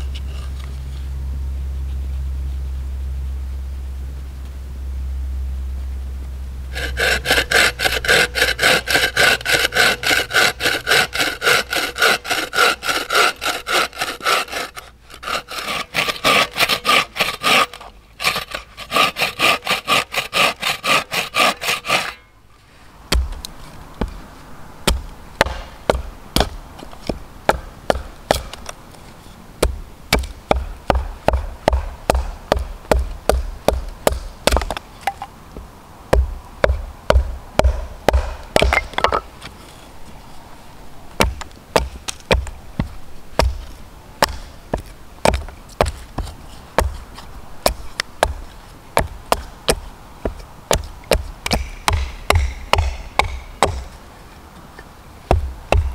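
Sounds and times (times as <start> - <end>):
low rumble: 0.0 - 7.0
bow saw cutting wood: 6.7 - 22.3, 51.5 - 54.0
hatchet chopping wood: 6.8 - 22.2, 23.1 - 24.2, 24.8 - 28.8, 29.6 - 35.3, 36.1 - 39.3, 41.2 - 47.0, 47.6 - 54.0, 55.3 - 55.9.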